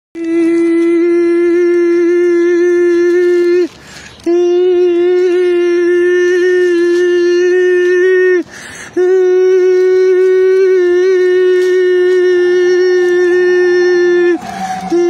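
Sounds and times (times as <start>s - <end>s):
man holding a high nasal note: 9.0s - 15.0s.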